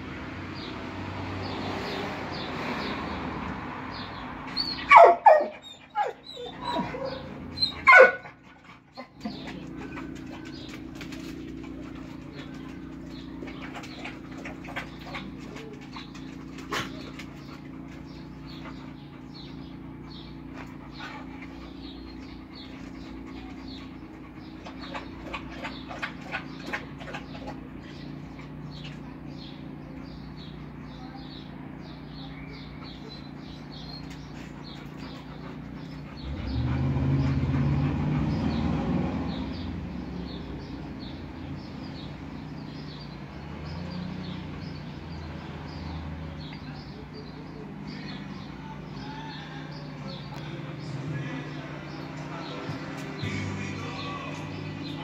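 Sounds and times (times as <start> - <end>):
passing vehicle rumble: 0.0 - 55.0
dogs panting: 1.4 - 55.0.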